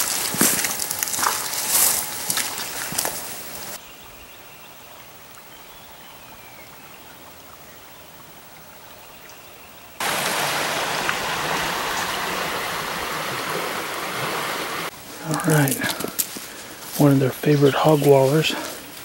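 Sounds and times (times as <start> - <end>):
creek water rushing: 0.0 - 3.8, 10.0 - 19.0
faint woodland background: 0.0 - 19.0.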